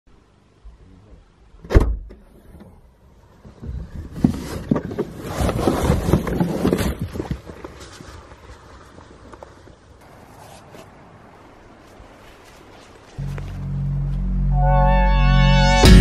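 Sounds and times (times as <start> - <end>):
bags rustling and bumping: 4.1 - 8.4.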